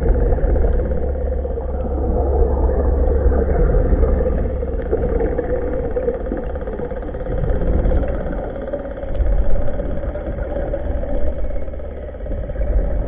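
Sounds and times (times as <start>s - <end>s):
underwater motor hum: 0.0s - 13.0s.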